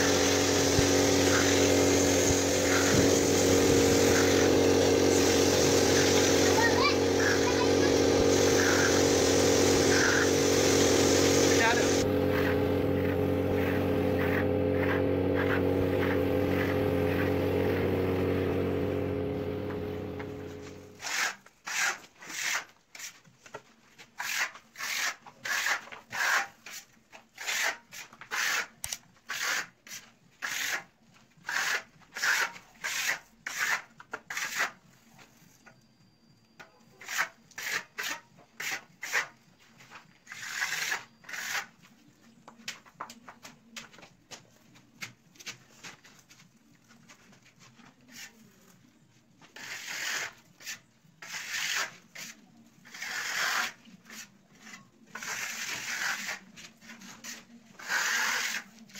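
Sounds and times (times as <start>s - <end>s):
steady machine hum: 0.0s - 21.0s
spatula trowel scraping plaster: 0.0s - 34.9s, 37.0s - 42.0s, 47.1s - 58.9s.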